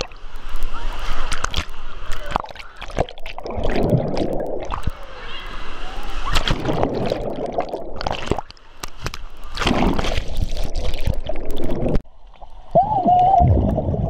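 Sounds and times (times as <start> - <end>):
water churning and sloshing: 0.0 - 12.7
muffled underwater gurgling: 1.3 - 8.5.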